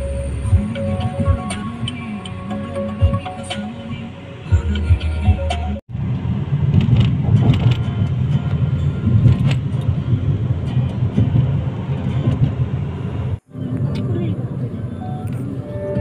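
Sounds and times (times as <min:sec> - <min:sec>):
car engine and road rumble: 0:00.0 - 0:16.0.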